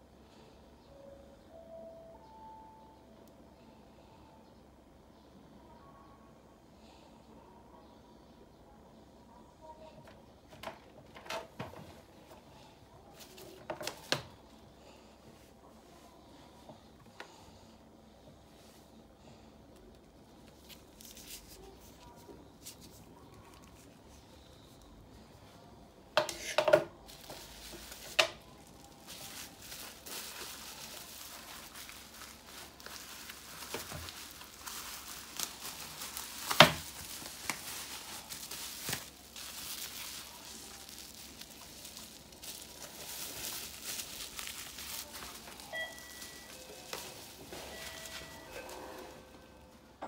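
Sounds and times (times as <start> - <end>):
bubble wrap rustling and crackling: 13.1 - 14.1, 19.9 - 24.8, 27.0 - 49.5.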